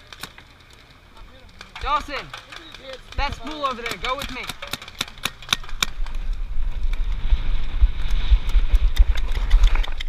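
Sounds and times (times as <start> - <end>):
paintball marker shots: 1.5 - 6.3
wind on microphone: 5.6 - 10.0.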